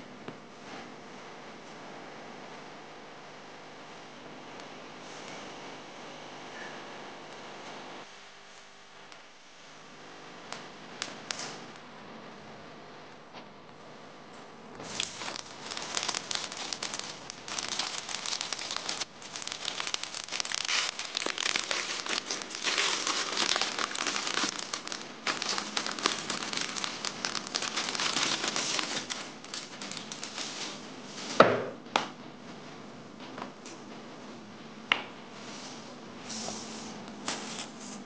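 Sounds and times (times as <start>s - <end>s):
plastic packaging crinkling: 14.8s - 31.4s.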